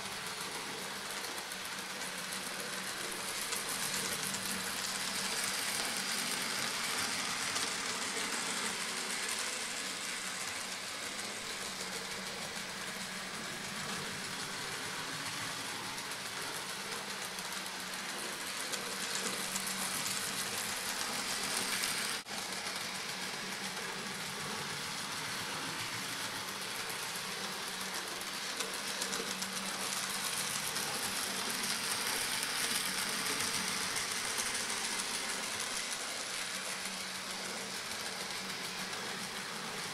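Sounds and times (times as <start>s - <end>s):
model train wheels rattling: 0.0s - 39.9s
small electric motors whirring: 0.0s - 39.9s.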